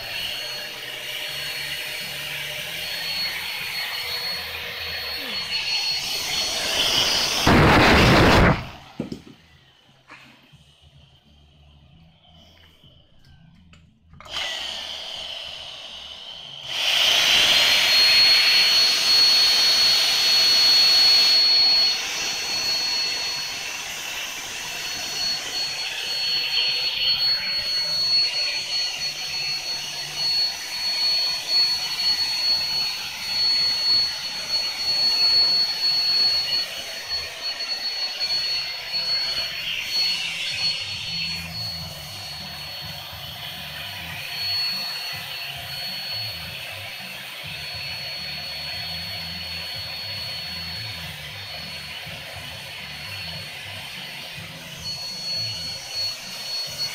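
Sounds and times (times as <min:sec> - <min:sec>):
vacuum cleaner motor whining: 0:00.0 - 0:13.6, 0:14.2 - 0:56.9.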